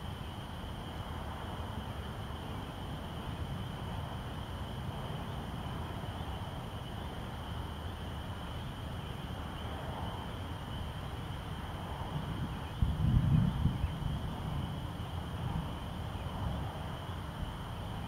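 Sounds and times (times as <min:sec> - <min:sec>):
insects or frogs calling: 0:00.0 - 0:18.0.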